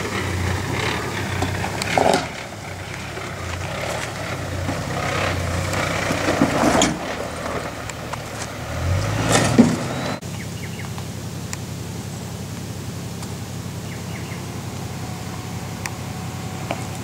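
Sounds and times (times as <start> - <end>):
truck engine at low revs: 0.0 - 17.0
bird or insect chirps: 9.8 - 11.1, 13.7 - 17.0.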